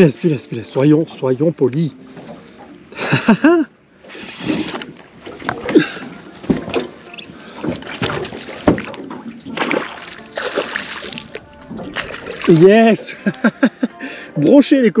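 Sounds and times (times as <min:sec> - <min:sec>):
fish splashing in water: 0:07.0 - 0:12.8
landing net knocking on hull: 0:07.6 - 0:12.6.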